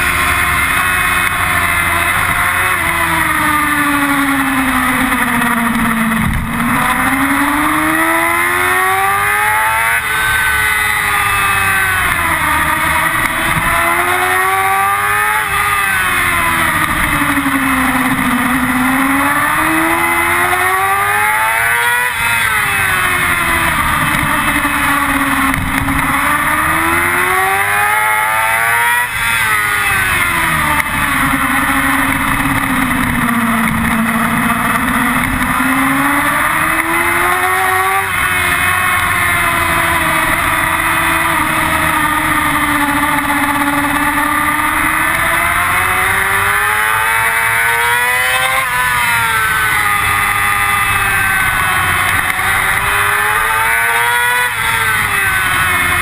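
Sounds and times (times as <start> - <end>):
motorcycle engine revving: 0.0 - 56.0
wind noise on microphone: 5.6 - 6.9, 23.5 - 26.8.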